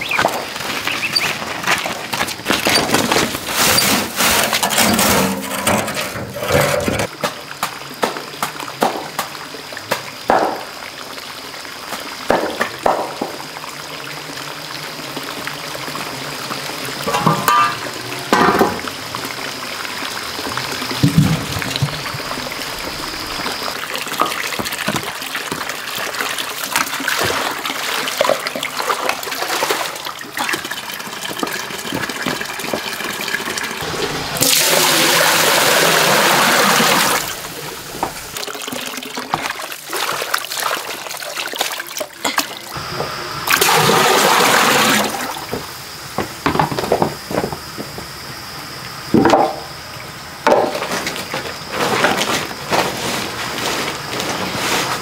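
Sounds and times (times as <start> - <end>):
handling knocks and clatter: 0.1 - 7.1, 17.1 - 18.8
water pouring into metal pot: 20.2 - 42.8, 43.5 - 45.4.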